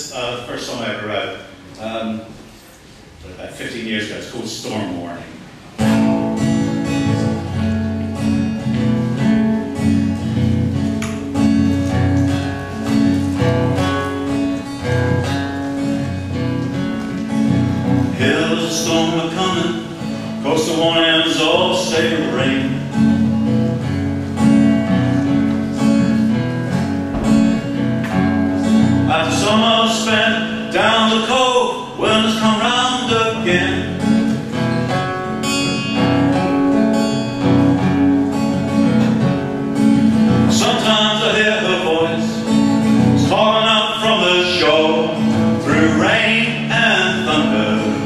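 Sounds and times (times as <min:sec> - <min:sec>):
fingerpicked acoustic guitar: 0:05.6 - 0:48.0
man singing: 0:18.0 - 0:23.2, 0:28.6 - 0:34.3, 0:40.4 - 0:48.0.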